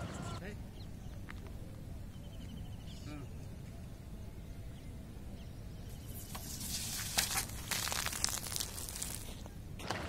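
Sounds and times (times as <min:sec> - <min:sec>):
foam spraying from a bottle: 0:06.0 - 0:09.4.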